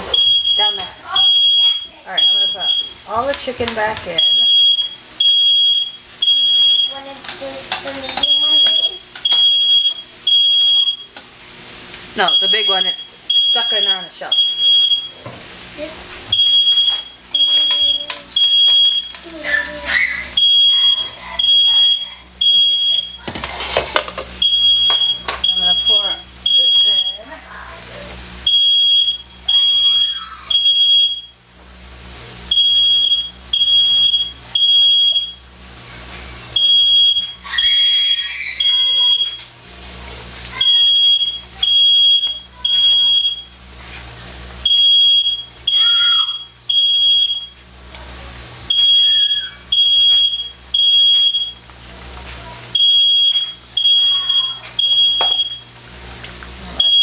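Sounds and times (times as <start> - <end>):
smoke alarm beeping: 0.0 - 7.1, 8.2 - 11.2, 12.2 - 15.3, 16.3 - 19.2, 20.3 - 23.4, 24.4 - 27.3, 28.4 - 31.5, 32.5 - 35.6, 36.5 - 39.6, 40.5 - 43.7, 44.6 - 47.7, 48.6 - 51.7, 52.7 - 55.8, 56.8 - 57.0.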